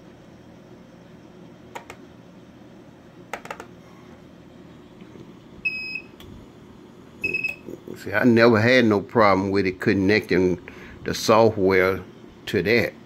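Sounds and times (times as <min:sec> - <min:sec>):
faint steady hum: 0:00.0 - 0:13.0
computer mouse clicks: 0:01.7 - 0:02.0, 0:03.3 - 0:03.7.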